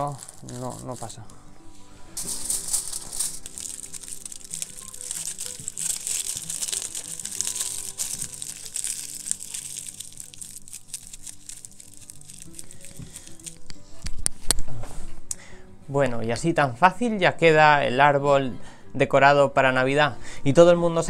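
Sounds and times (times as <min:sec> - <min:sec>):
aluminium foil crinkling: 0:00.0 - 0:01.4, 0:02.2 - 0:14.3
soft background music: 0:00.0 - 0:21.0.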